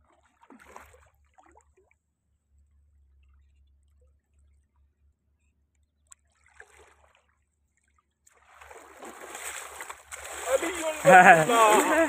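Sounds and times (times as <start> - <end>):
person wading through water: 0.0 - 2.0, 6.2 - 12.0.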